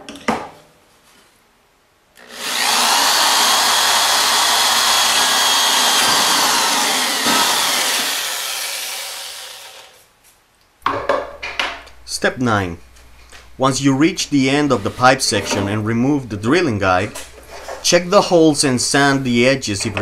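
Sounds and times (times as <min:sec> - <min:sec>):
electric drill boring through pipe: 0:02.2 - 0:10.0.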